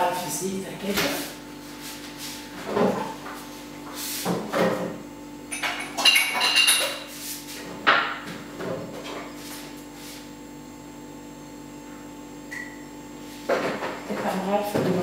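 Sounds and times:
kitchen things clattering: 5.5 - 7.1.

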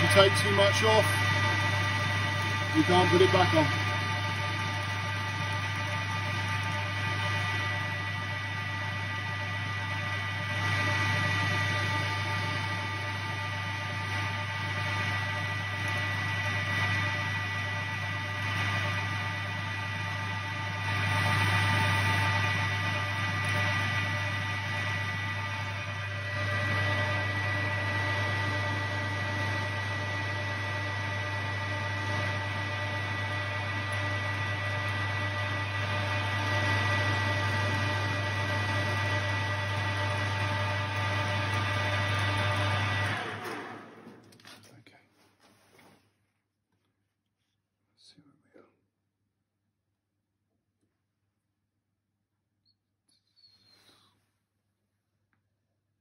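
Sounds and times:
lathe humming and whining: 0.0 - 44.4.

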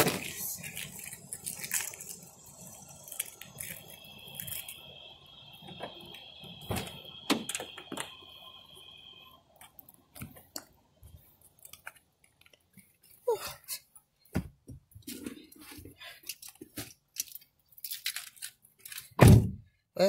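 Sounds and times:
faint high whine: 0.0 - 11.6
car door opening: 5.7 - 8.2.

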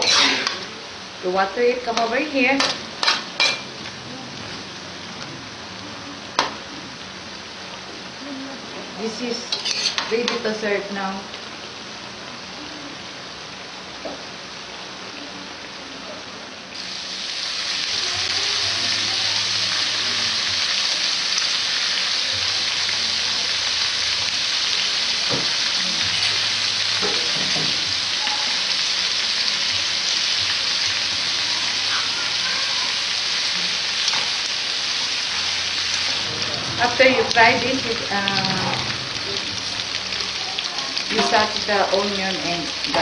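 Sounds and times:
loud sizzle of frying: 0.0 - 43.0.

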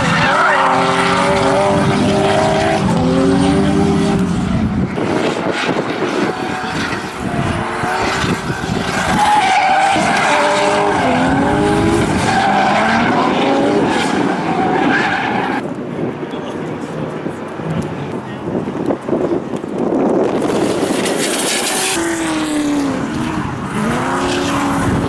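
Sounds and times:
car engine revving hard: 0.0 - 14.6, 20.4 - 25.0.

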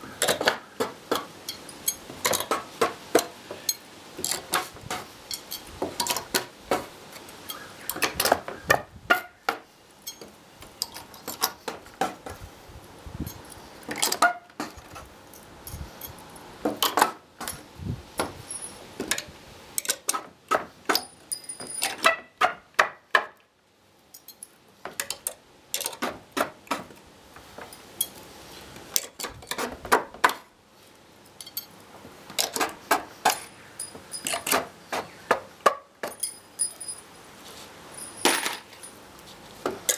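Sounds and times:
crowbar clinking on nails: 10.0 - 11.5, 20.9 - 22.1, 31.4 - 31.7, 33.2 - 34.6, 36.0 - 37.1.

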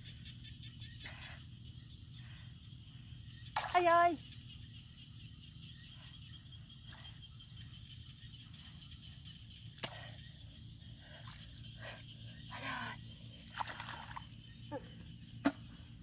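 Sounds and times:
steady low hum: 0.0 - 16.0
hands squelching in wet mud: 12.6 - 14.4.

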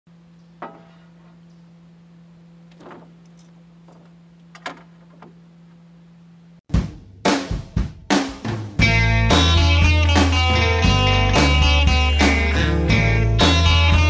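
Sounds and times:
steady low hum: 0.1 - 6.6.

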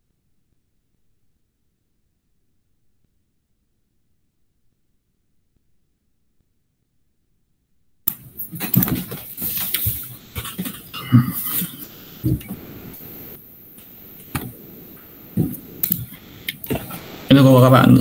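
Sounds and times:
microphone handling noise: 8.1 - 18.0.

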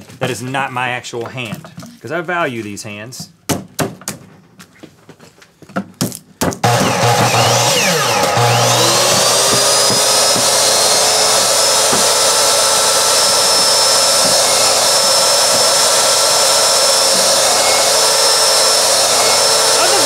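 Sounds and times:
miter saw whining: 6.6 - 20.0.

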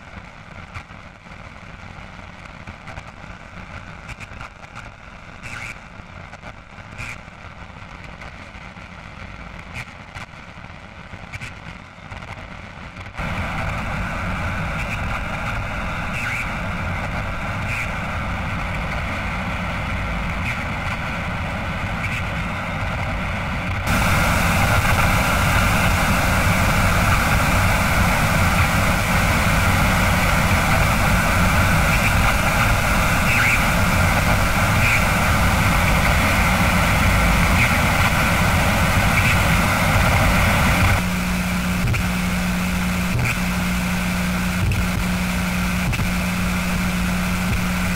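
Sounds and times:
crackles: 0.0 - 47.9
static hiss: 0.0 - 47.9
low rumble: 13.2 - 41.8.

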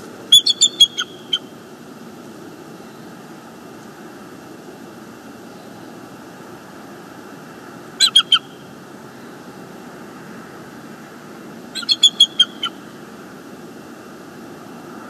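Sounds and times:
eagle calling: 0.3 - 1.6, 8.0 - 8.6, 11.8 - 13.0.

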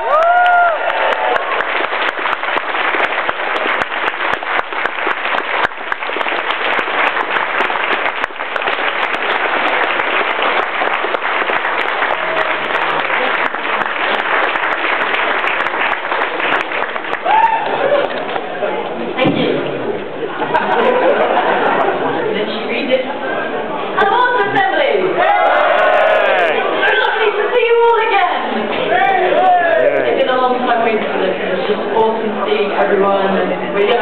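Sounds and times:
person whooping: 0.0 - 1.0, 17.2 - 18.1, 25.5 - 26.6
audience applauding: 0.0 - 18.7, 25.2 - 27.1, 29.6 - 30.2.

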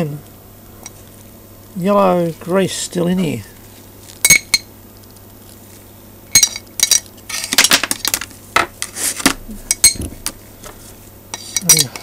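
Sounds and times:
steel ball bearings clinking: 11.4 - 12.0.

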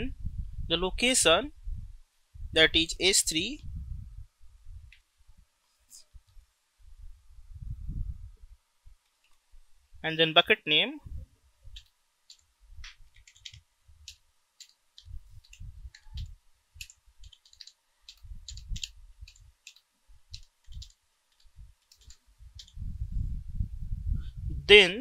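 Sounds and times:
computer keyboard key clicks: 13.2 - 19.8.

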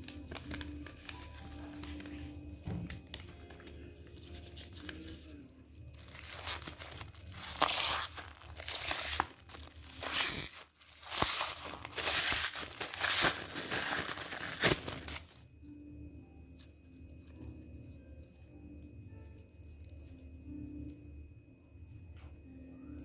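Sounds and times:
plastic wrap crinkling and tearing: 0.0 - 15.4.

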